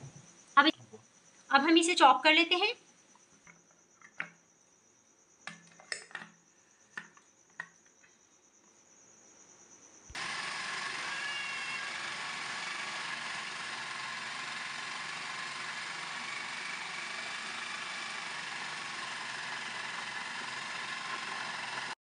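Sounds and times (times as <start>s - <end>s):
electric food chopper running: 10.2s - 22.0s.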